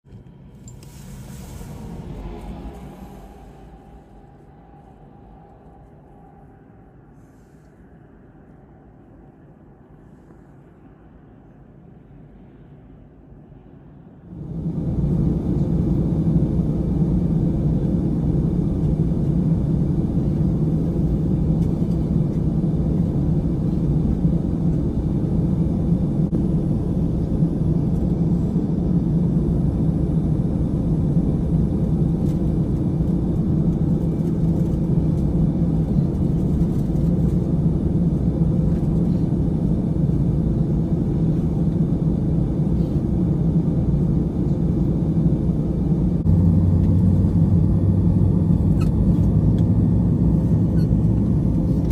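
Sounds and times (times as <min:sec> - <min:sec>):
airliner cabin rumbling drone: 0:00.0 - 0:51.9.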